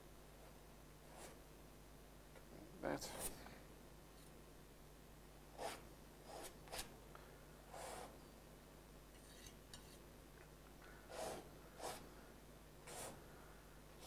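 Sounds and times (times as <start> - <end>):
painting knife scraping canvas: 5.6 - 6.9, 11.1 - 12.0, 12.8 - 13.2.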